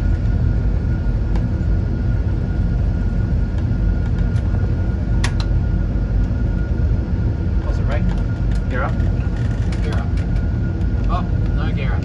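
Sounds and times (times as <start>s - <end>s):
faint steady whine: 0.0s - 12.0s
jet engines rumbling at takeoff: 0.0s - 12.0s.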